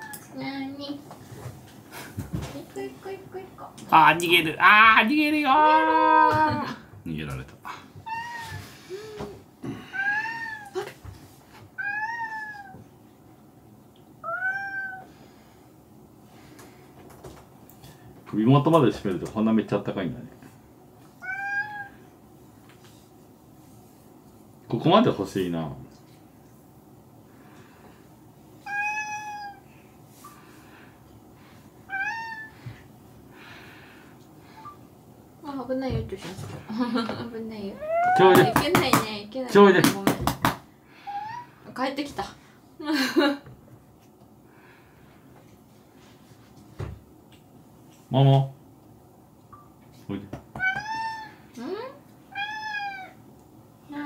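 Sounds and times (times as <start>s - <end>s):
cat meowing: 8.0s - 8.6s, 9.9s - 10.8s, 11.8s - 12.8s, 14.2s - 15.1s, 21.2s - 22.0s, 28.6s - 29.7s, 31.9s - 32.6s, 50.6s - 51.4s, 52.3s - 53.2s.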